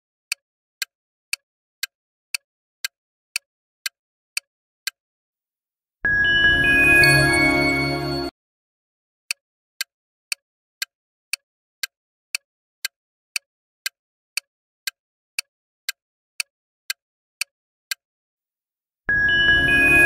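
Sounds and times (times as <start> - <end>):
clock-like timer ticks: 0.3 - 5.0, 9.3 - 18.0
jingly music cue: 6.1 - 8.3, 19.1 - 20.0.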